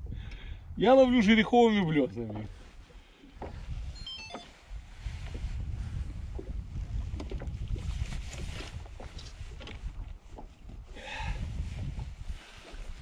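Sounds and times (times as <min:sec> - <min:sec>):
wind buffeting microphone: 0:00.0 - 0:01.2, 0:01.9 - 0:04.0, 0:04.7 - 0:13.0
water lapping at boat hull: 0:01.9 - 0:13.0
gear knocking in boat: 0:06.3 - 0:10.8.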